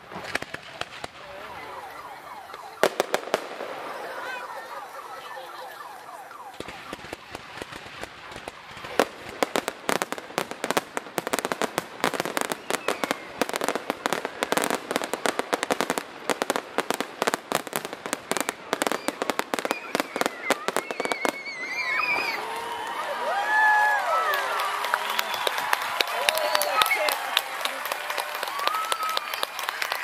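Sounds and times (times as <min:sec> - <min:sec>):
fireworks bursting: 0:00.0 - 0:22.6
people cheering and whooping: 0:00.4 - 0:07.7, 0:12.1 - 0:15.9, 0:17.8 - 0:30.0.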